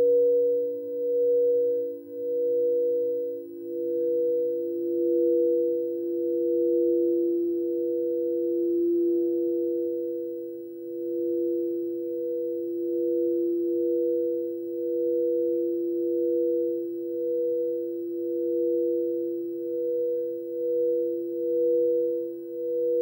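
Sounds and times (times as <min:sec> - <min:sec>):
crystal singing bowls ringing: 0:00.0 - 0:23.0.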